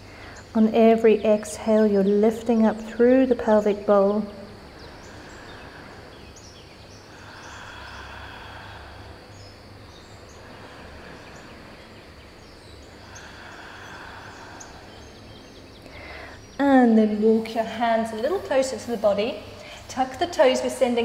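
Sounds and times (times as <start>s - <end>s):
faint bird chirps: 3.7s - 20.0s
deep breaths through the nose: 4.6s - 16.5s.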